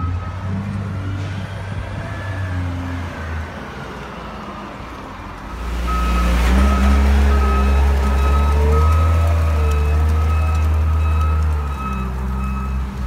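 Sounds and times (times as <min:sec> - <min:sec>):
reversing alarm beeping: 0:00.0 - 0:02.8, 0:05.4 - 0:13.0
diesel engine running: 0:00.0 - 0:13.0.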